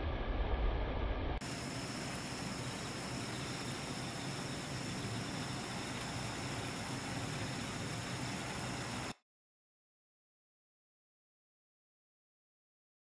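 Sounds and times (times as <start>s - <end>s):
low rumble: 0.0s - 9.1s
night insects trilling: 1.4s - 9.1s
outdoor hiss: 1.4s - 9.2s.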